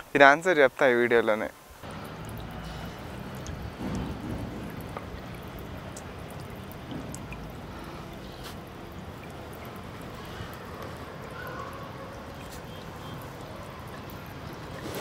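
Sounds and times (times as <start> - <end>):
droplet ticks: 1.8 - 10.1
fountain water splashing: 1.8 - 15.0.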